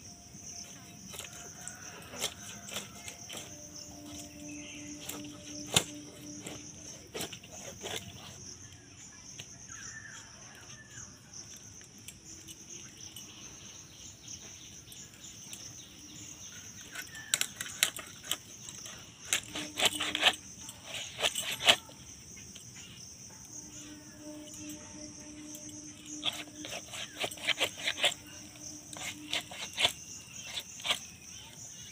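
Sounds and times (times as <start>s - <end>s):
insects chirring: 0.0s - 31.9s
blade cutting through fish: 4.9s - 8.4s, 17.5s - 22.0s, 26.1s - 31.9s.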